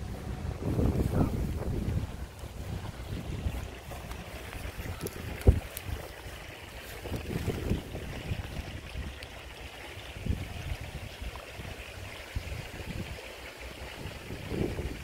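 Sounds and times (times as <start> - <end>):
water sloshing and trickling: 0.0 - 15.0.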